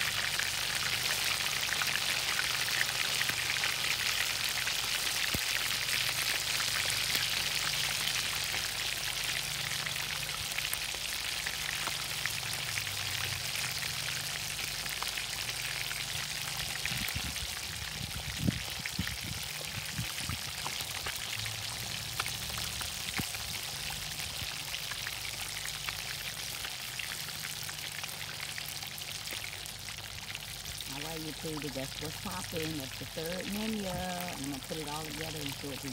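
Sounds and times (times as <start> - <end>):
oil sizzling while deep-frying: 0.0 - 35.9.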